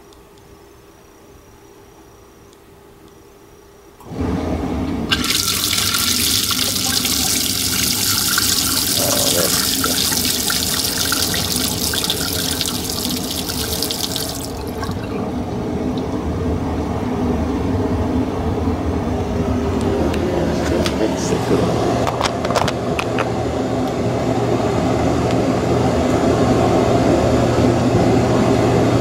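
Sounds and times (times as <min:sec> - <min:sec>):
dishwasher low hum: 0:04.0 - 0:29.0
water splashing into metal sink: 0:05.1 - 0:16.2.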